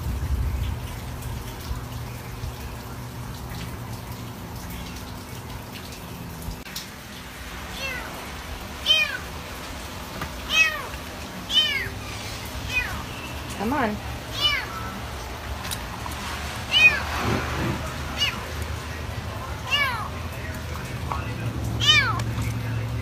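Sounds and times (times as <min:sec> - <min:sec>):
kitten mewing: 0:07.7 - 0:08.2, 0:08.8 - 0:09.3, 0:10.4 - 0:10.9, 0:11.5 - 0:12.0, 0:14.3 - 0:15.0, 0:16.7 - 0:18.6, 0:19.6 - 0:20.1, 0:21.8 - 0:22.2.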